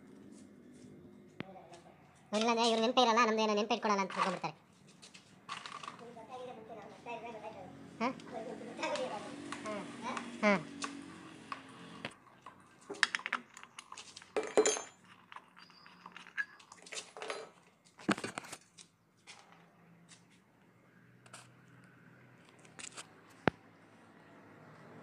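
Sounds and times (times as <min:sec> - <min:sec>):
sharp metallic clicks and clatter: 0:04.0 - 0:06.1.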